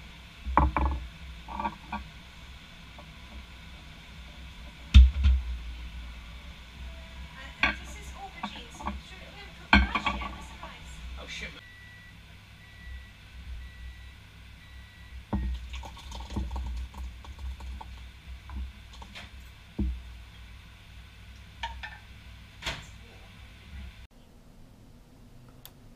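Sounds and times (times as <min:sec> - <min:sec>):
spoon knocking against saucepan: 0:09.7 - 0:10.4.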